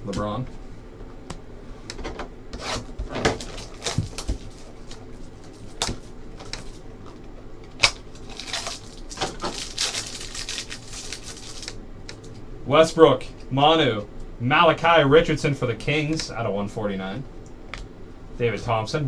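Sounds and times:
plastic wrapper tearing: 7.8 - 11.8.

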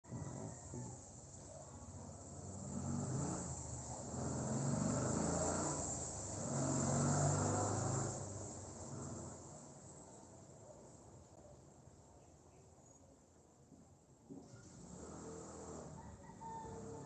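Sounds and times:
vehicle engine passing: 2.1 - 9.9, 14.5 - 17.0.

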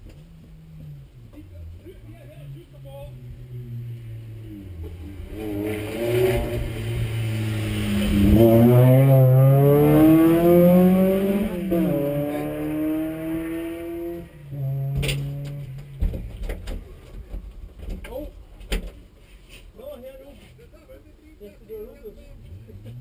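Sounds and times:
car engine revving: 0.0 - 17.3.

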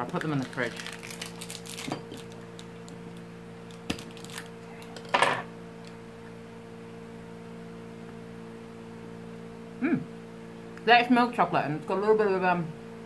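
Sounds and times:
chocolate crunch: 0.0 - 5.1
steady low hum: 0.0 - 13.0.

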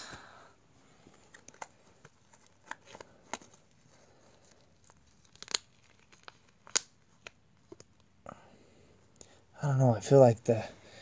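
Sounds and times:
plastic crinkling and snapping: 1.1 - 8.1.

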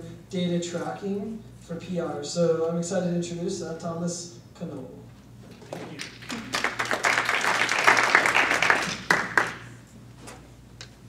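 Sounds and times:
audience applauding: 5.8 - 9.7.

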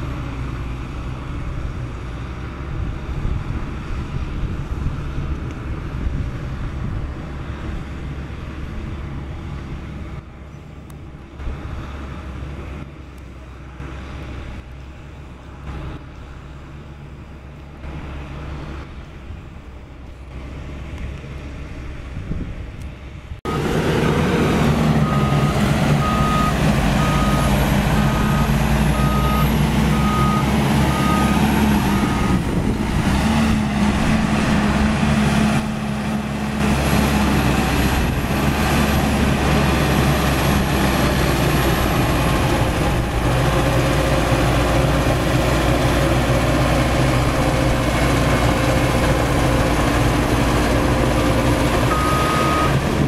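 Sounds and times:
bulldozer diesel engine under load: 0.0 - 53.0
reversing alarm beeping: 23.5 - 23.8, 24.9 - 32.4, 51.9 - 52.8.

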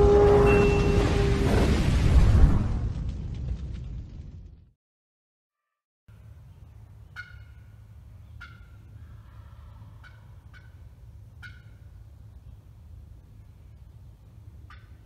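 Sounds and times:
low steady rumble: 6.1 - 15.0
turkey calls: 7.1 - 12.0, 14.6 - 15.0.

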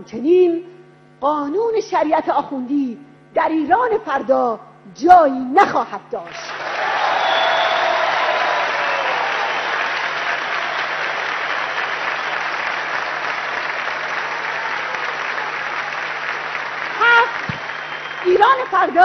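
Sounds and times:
audience applauding: 6.5 - 19.0.

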